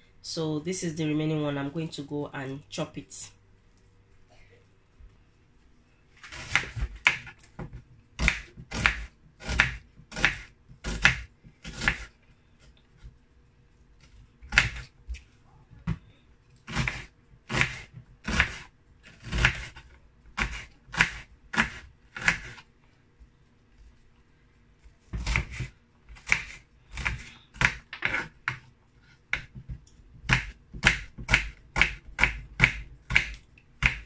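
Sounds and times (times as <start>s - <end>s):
knife chopping on cutting board: 6.3s - 12.1s, 16.7s - 19.8s, 25.2s - 28.7s, 29.3s - 34.0s.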